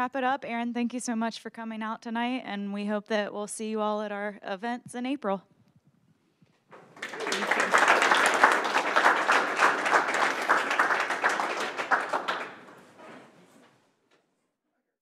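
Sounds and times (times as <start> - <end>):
small audience applauding: 6.7 - 13.6.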